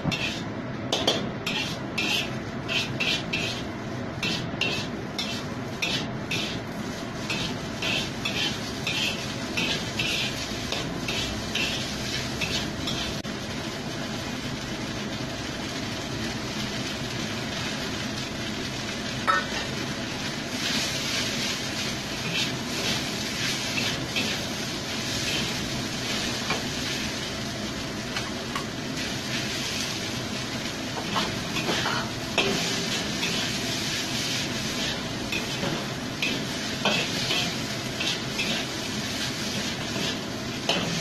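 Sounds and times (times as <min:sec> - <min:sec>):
metal spatula scraping wok: 0:00.0 - 0:13.2, 0:20.6 - 0:27.0, 0:31.0 - 0:41.0
frying sizzle: 0:00.0 - 0:41.0.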